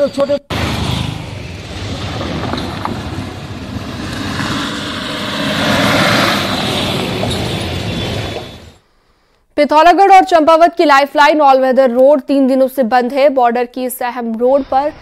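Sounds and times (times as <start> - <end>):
vehicles driving past: 0.2 - 8.8.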